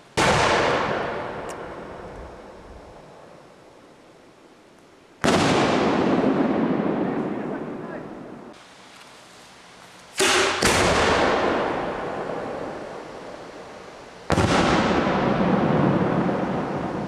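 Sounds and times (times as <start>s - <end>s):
firework shell bangs with echo: 10.2s - 12.5s.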